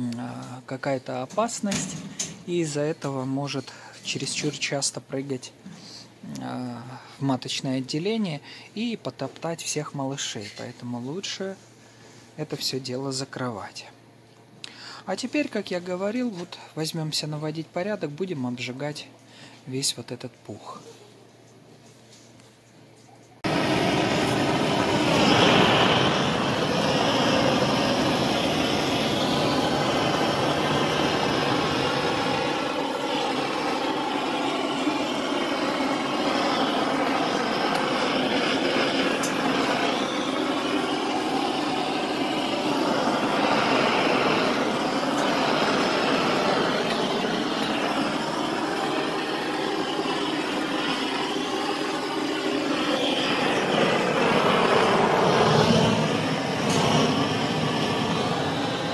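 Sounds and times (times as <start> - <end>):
blowtorch flame hissing: 23.4 - 58.9.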